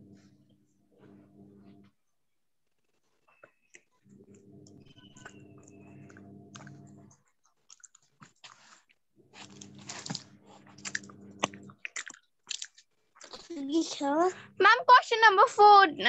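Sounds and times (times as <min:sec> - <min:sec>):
low electrical buzz: 0:00.0 - 0:02.0, 0:04.0 - 0:07.2, 0:09.2 - 0:11.7.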